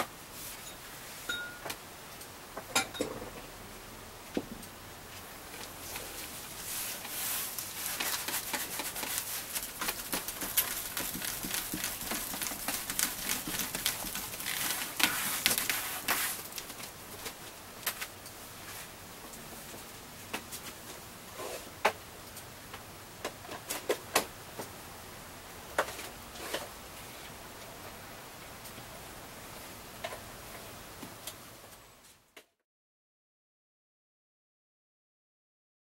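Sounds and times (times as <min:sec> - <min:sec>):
paper being handled: 0:05.9 - 0:17.3
scrubbing rustling on woodblock: 0:06.6 - 0:16.8.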